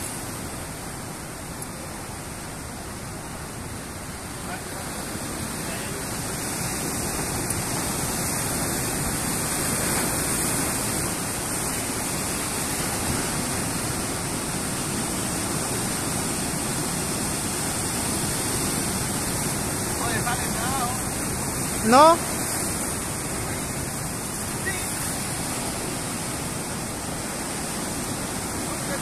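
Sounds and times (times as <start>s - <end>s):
surf washing over rocks: 0.0s - 29.0s.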